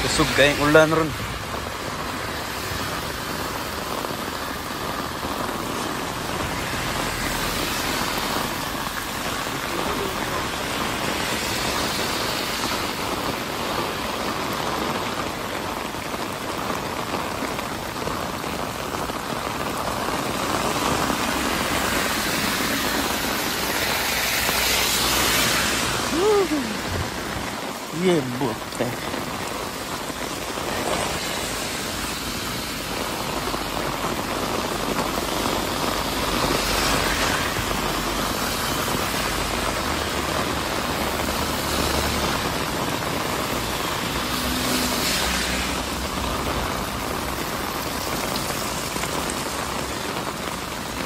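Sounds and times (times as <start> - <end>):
heavy rain on pavement: 0.0 - 51.0
water pouring from wall: 0.0 - 51.0.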